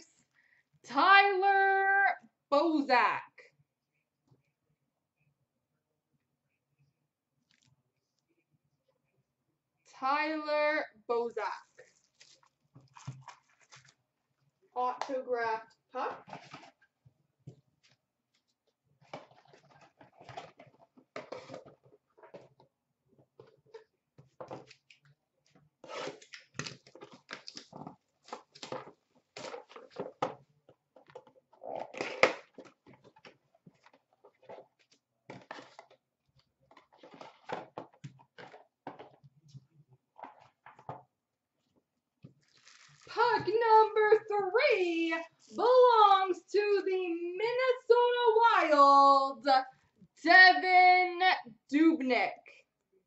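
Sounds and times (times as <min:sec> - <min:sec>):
boxes rustling and scraping: 0:16.2 - 0:16.9, 0:19.0 - 0:22.6, 0:36.6 - 0:41.0.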